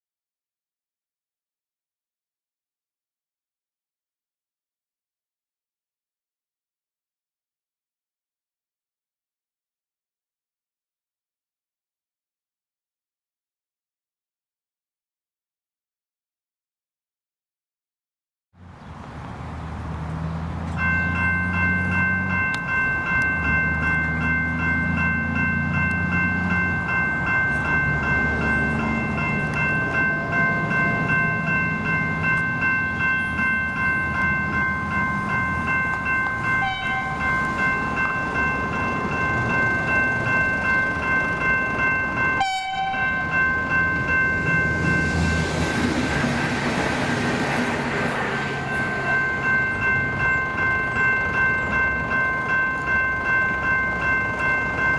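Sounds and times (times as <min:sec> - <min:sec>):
train wheels rushing: 0:19.9 - 0:54.9
level crossing bell ringing: 0:20.8 - 0:45.7, 0:48.4 - 0:54.9.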